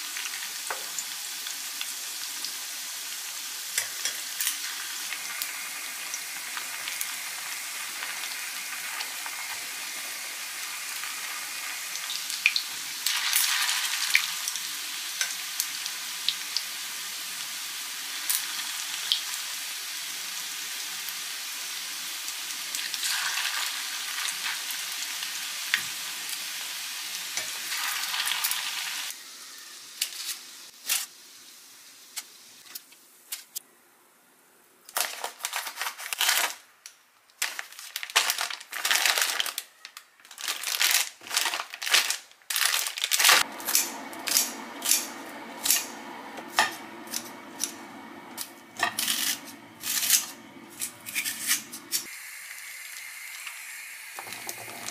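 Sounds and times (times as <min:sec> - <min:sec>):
meatballs sizzling in oil: 0:00.0 - 0:33.6, 0:43.2 - 0:54.9
scissors cutting plastic packet: 0:34.9 - 0:36.6, 0:37.4 - 0:45.1
steady low hum: 0:43.4 - 0:52.1.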